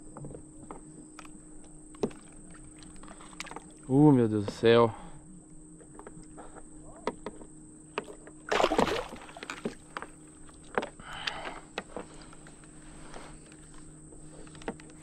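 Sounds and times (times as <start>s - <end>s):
water splashing: 8.5s - 9.9s.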